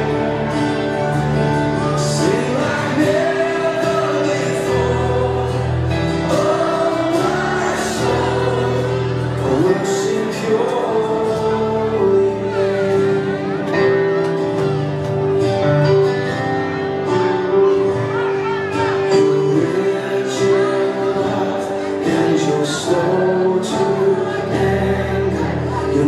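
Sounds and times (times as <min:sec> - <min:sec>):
children singing: 0:01.8 - 0:14.0.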